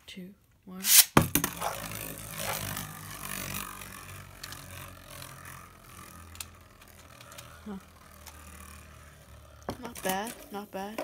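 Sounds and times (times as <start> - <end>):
spinning top whirring scrape: 0.8 - 11.0
spinning top clattering in plastic bowl: 9.7 - 11.0.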